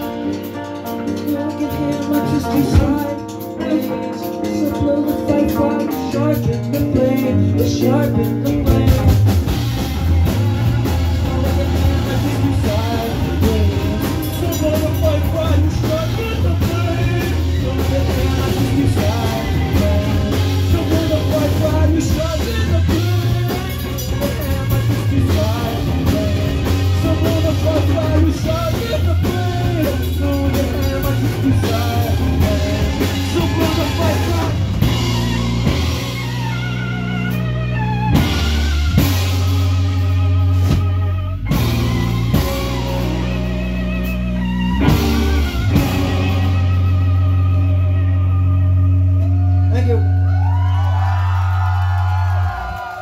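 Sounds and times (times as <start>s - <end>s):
drum kit with cymbals: 0.0s - 50.0s
bass guitar: 0.0s - 53.0s
electric guitars: 0.0s - 53.0s.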